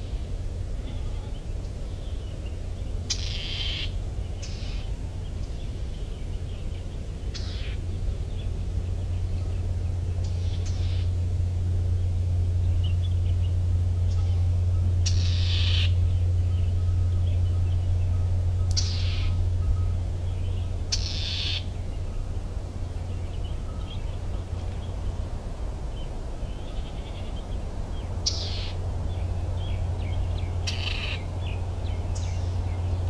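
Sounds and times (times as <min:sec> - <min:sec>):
birds calling: 0:00.0 - 0:33.0
steady low rumble: 0:00.0 - 0:33.0.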